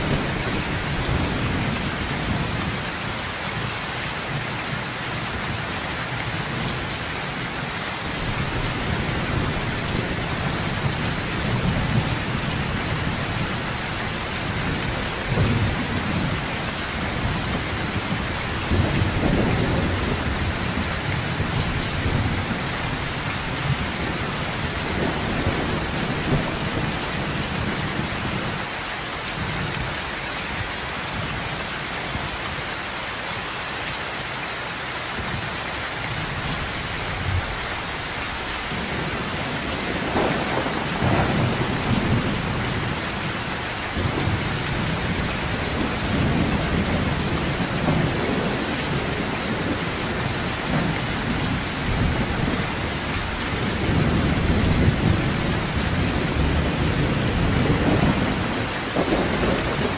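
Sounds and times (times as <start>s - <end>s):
thunder rumbling: 0.0s - 3.0s, 8.1s - 28.6s, 36.1s - 59.9s
heavy rain on a metal roof: 0.0s - 59.9s.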